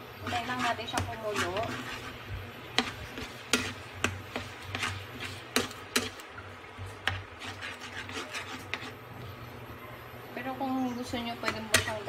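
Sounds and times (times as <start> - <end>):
spatula scraping frying pan: 0.0 - 9.3, 11.4 - 12.0
low steady hum: 0.0 - 12.0.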